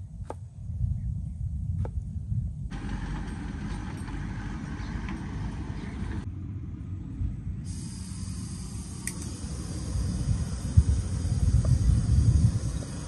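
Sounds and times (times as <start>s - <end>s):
low steady rumble: 0.0s - 13.0s
faint hiss: 7.6s - 13.0s.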